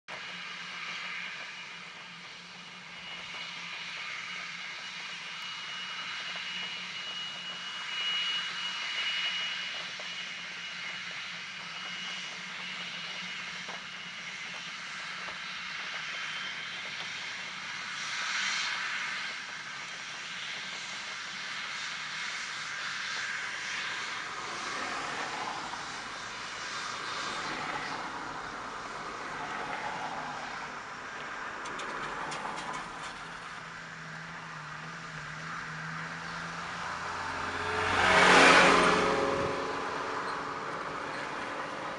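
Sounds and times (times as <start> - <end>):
jet engines whining: 0.1 - 41.9.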